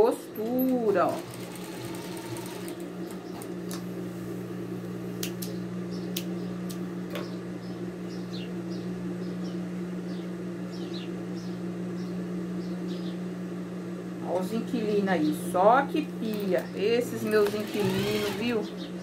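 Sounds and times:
sewing machine motor humming: 0.6 - 3.6, 17.2 - 18.7
small birds chirping: 5.5 - 13.4, 16.2 - 19.0.

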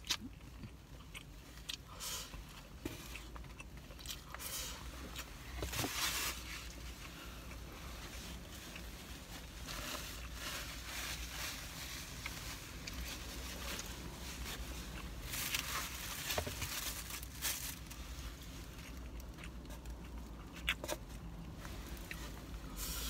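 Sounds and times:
paper and foam container crinkling: 9.4 - 18.0.

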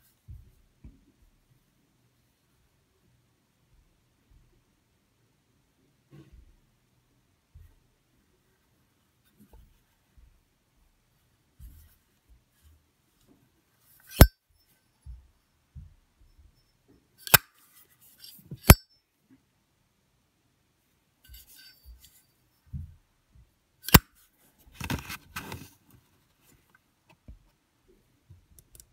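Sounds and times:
lighter lid metallic clicks: 17.2 - 17.4
lighter being handled: 17.2 - 17.5.

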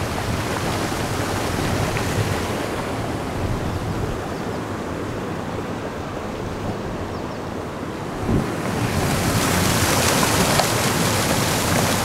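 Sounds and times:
water rushing through rocky channel: 0.0 - 3.4, 7.9 - 12.0
wind on microphone: 0.0 - 12.0.

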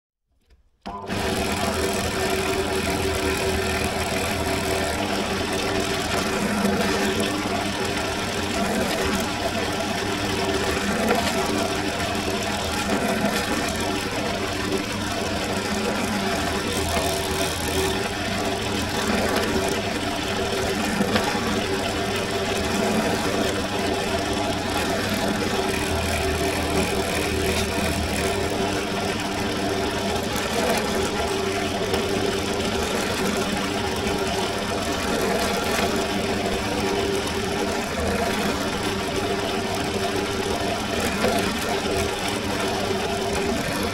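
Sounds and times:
drill press motor humming: 0.8 - 43.9
drill bit drilling leather: 15.6 - 19.6, 24.7 - 28.6.

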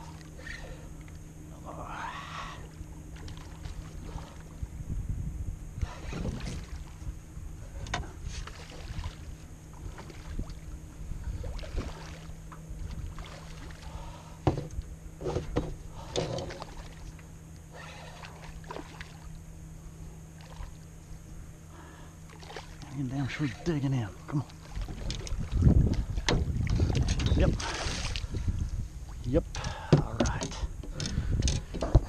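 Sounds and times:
low rumble: 0.0 - 32.0
knocks against canoe: 14.4 - 16.7, 26.2 - 27.7, 29.6 - 32.0.

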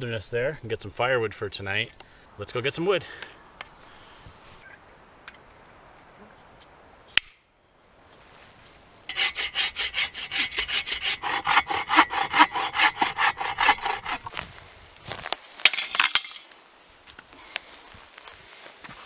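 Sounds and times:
hand saw cutting branches: 9.1 - 14.4.

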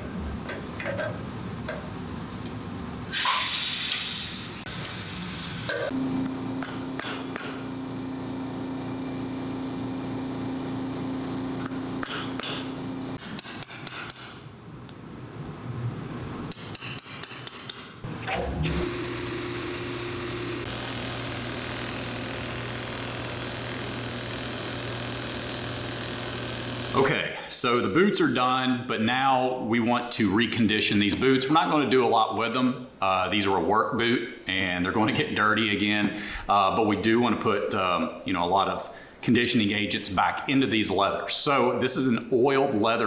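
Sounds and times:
steady machine hum: 4.4 - 16.6, 18.0 - 27.3
sanding wheel motor running: 18.8 - 27.0.

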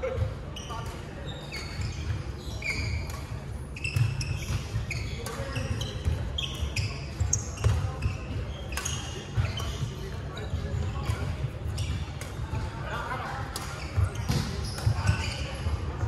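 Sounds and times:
shoes squeaking on wooden court: 0.0 - 16.0
rackets hitting shuttlecock: 13.5 - 15.2.

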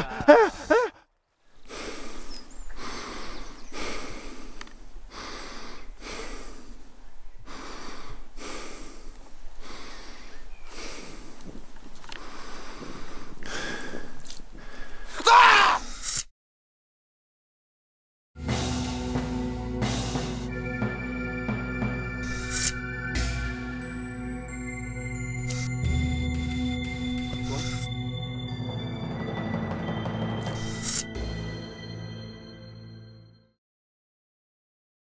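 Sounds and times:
person breathing heavily: 0.0 - 11.5, 12.1 - 15.2, 27.4 - 27.9
person crying out: 15.2 - 15.9.

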